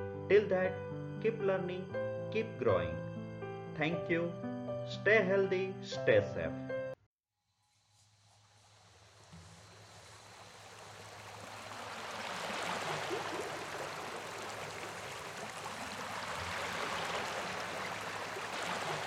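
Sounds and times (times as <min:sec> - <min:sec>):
surf washing up a beach: 0:08.7 - 0:19.0.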